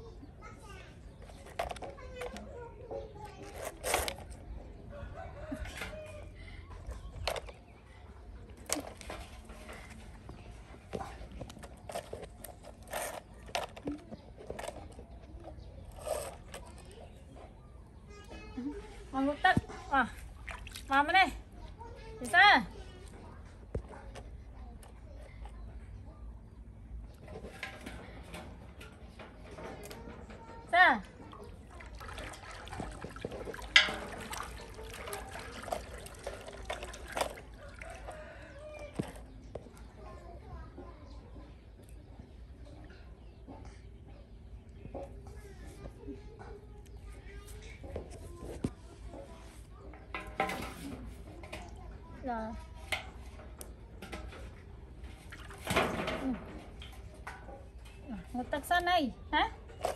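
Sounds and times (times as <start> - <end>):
plastic toy scraping on concrete: 1.2 - 2.4, 3.2 - 4.6, 11.2 - 17.1
monkey scuffing plastic toy: 3.4 - 4.4.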